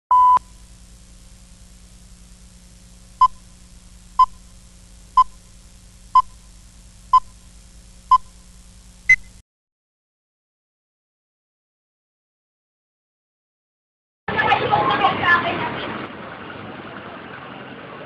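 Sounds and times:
countdown beeps: 0.1 - 0.4
faint low hum: 0.1 - 9.4.

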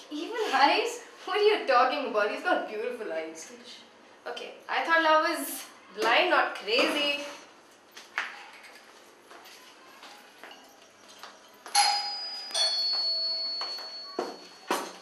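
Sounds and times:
ringing bell-like strikes: 11.6 - 15.0.

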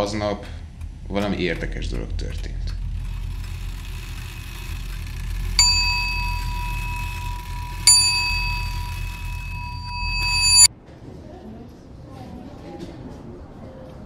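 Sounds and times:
steady low hum: 0.0 - 10.7
school bell ringing: 3.1 - 10.7.

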